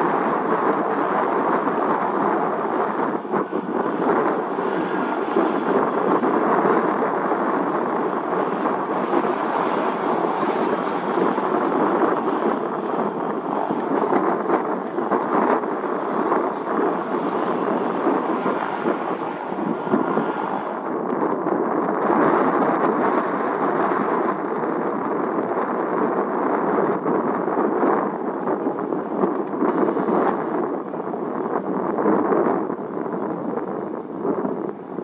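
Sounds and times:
airplane engines roaring: 0.0 - 35.0
high steady whine: 0.0 - 35.0.

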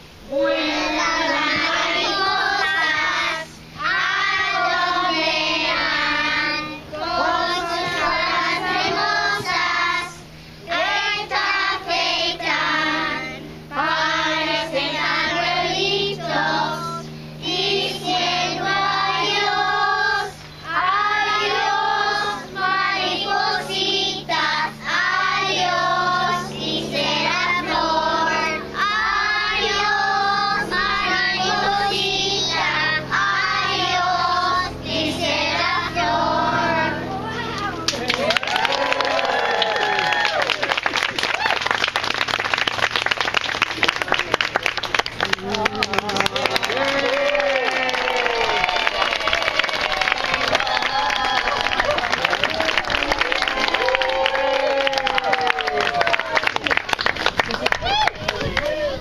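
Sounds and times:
young children singing: 0.3 - 37.3.

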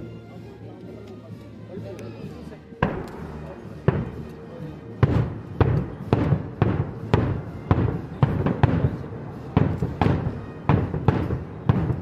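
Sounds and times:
firework bombs bursting: 2.8 - 4.3, 5.0 - 12.0.

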